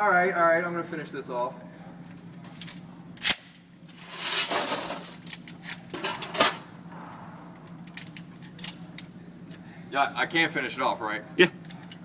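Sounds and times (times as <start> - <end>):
rush of noise: 6.9 - 8.7.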